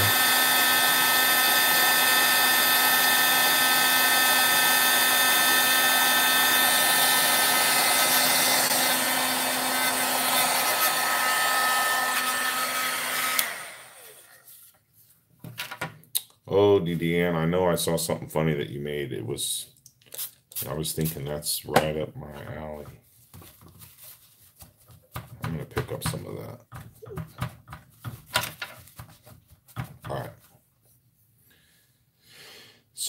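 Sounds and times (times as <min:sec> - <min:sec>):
heat gun running: 0:00.0 - 0:14.4
person talking: 0:16.4 - 0:19.8, 0:20.6 - 0:23.0, 0:25.4 - 0:27.4, 0:30.0 - 0:30.5.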